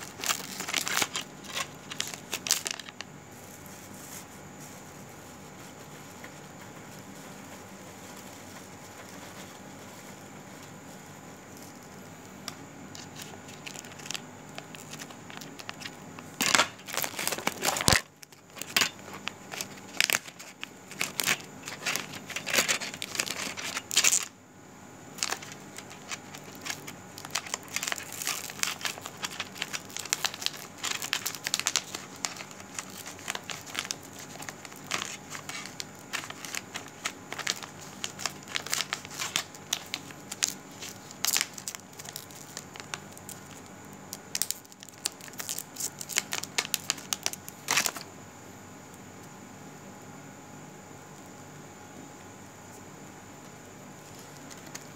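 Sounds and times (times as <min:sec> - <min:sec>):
crackling and rustling on microphone: 0:00.0 - 0:24.3.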